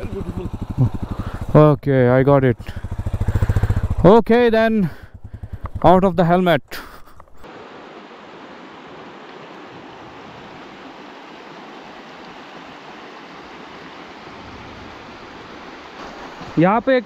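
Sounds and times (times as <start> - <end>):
river rushing over stones: 7.4 - 17.0.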